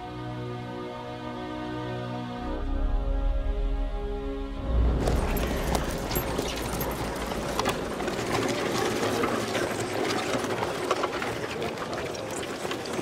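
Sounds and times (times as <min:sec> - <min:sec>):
wooden hurdle scraping over gravel: 0:05.0 - 0:13.0.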